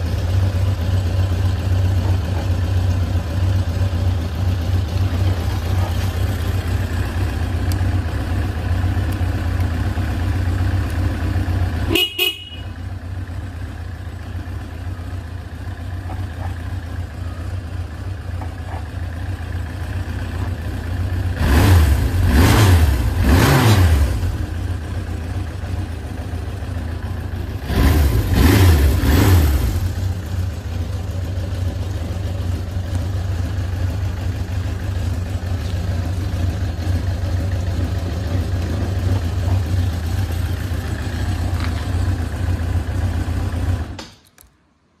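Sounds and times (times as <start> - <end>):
motorcycle engine revving: 0.0 - 17.0, 18.5 - 44.1
motorcycle engine idling: 0.0 - 23.3, 24.0 - 44.2
click: 44.0 - 44.6.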